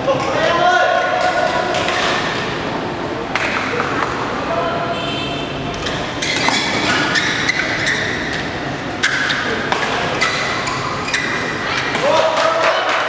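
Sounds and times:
rackets hitting shuttlecock: 1.1 - 2.6, 3.3 - 4.3, 5.7 - 12.6
shoes squeaking on court: 5.8 - 11.9.

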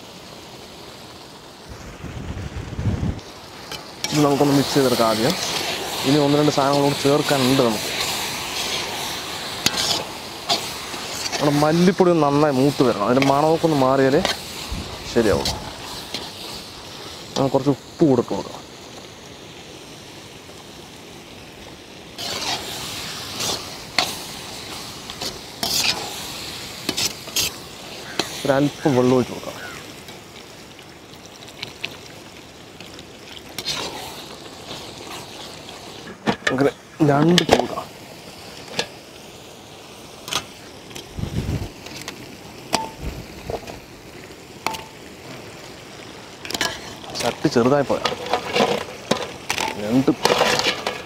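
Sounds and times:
masala sizzling in a pan: 0.0 - 51.0
ladle scraping and clinking on pan: 9.6 - 11.5, 25.1 - 26.1, 46.5 - 47.0, 47.9 - 51.0.

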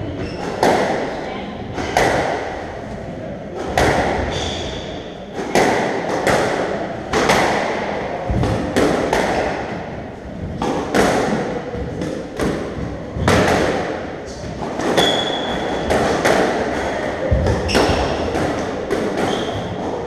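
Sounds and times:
shoe squeak: 0.1 - 0.6, 15.0 - 15.8, 17.7 - 18.2, 19.3 - 19.6.

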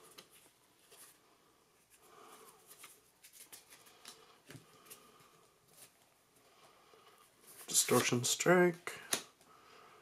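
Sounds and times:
cards flicked through by hand: 9.0 - 9.4.

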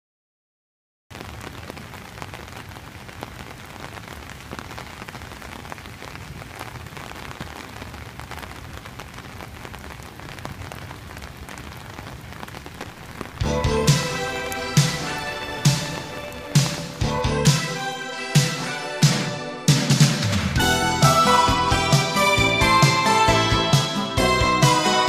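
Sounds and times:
rain falling on asphalt: 1.1 - 17.9.

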